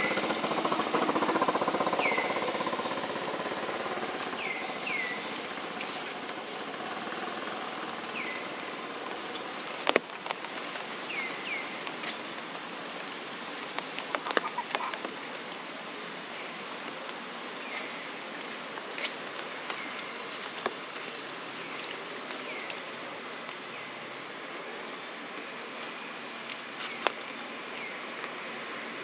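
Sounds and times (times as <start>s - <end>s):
steady rain falling: 0.0s - 29.0s
raindrop taps: 9.8s - 10.9s, 13.0s - 15.6s.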